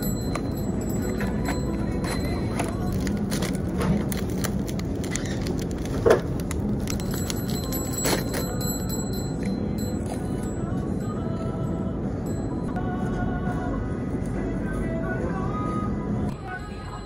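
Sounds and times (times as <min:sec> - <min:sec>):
paper wrapper crinkling: 0:02.3 - 0:08.6.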